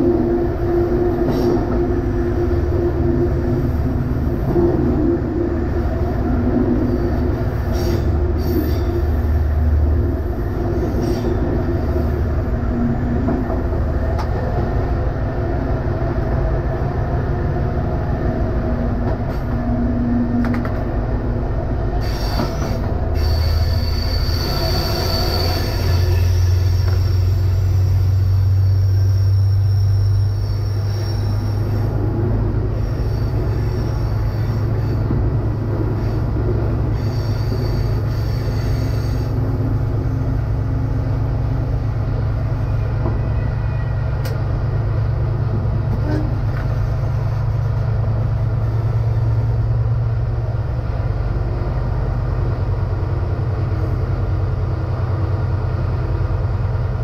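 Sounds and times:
diesel engine drone: 0.0s - 57.0s
high wheel squeal: 6.8s - 9.5s, 22.0s - 44.5s.

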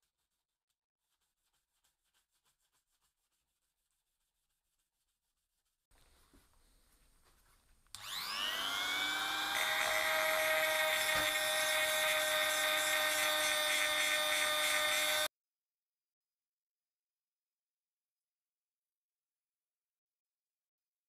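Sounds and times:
die grinder whining: 8.0s - 15.3s.

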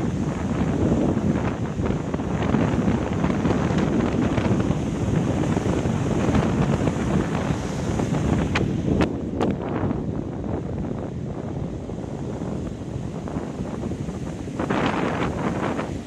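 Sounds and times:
breaking surf: 0.0s - 16.0s
gusty wind on microphone: 0.0s - 16.0s.

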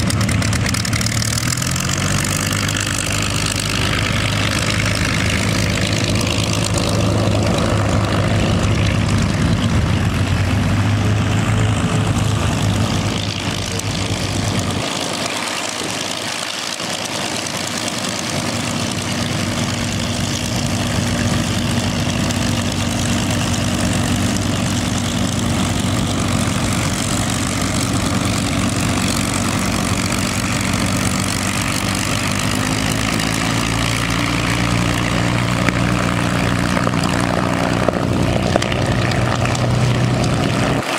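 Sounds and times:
propeller plane engines running: 0.0s - 40.9s.

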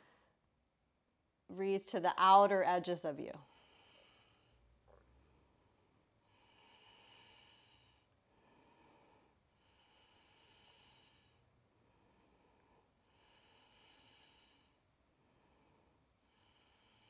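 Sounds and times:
faint slow breathing: 3.4s - 17.0s.

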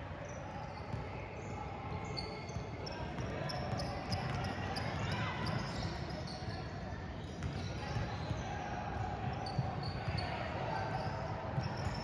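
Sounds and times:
sneakers squeaking: 0.2s - 8.6s.

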